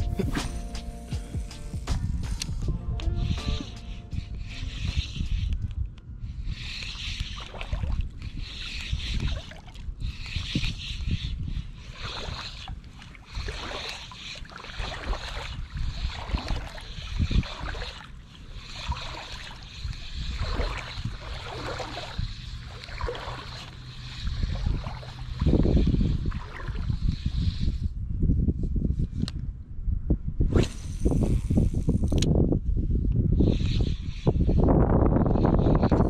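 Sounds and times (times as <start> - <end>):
wind on microphone: 0.0 - 36.0
water sloshing from wading: 6.8 - 27.0.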